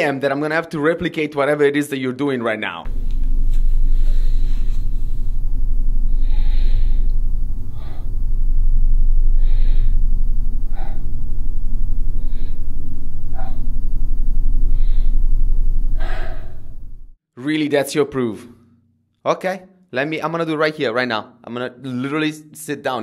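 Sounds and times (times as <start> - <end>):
deep hum: 2.9 - 17.2
man breathing sharply: 3.2 - 17.0.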